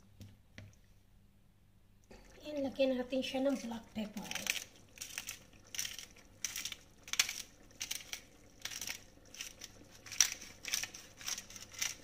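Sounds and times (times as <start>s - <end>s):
pepper grinder crunching: 4.2s - 12.0s.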